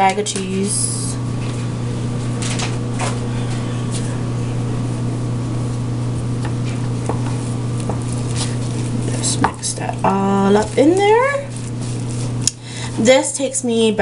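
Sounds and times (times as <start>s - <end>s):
steady low hum: 0.0s - 14.0s
utensil stirring in plastic bowl: 6.4s - 12.4s.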